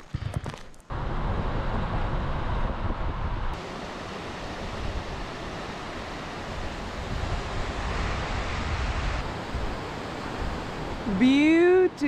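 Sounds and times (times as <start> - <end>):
wind rumbling on microphone: 0.1 - 3.6, 6.4 - 11.2.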